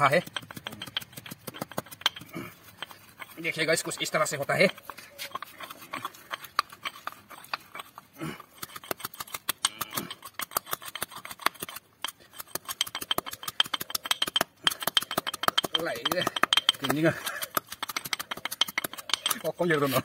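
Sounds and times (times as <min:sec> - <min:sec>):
metal spoon pounding in a pot: 0:12.9 - 0:19.4.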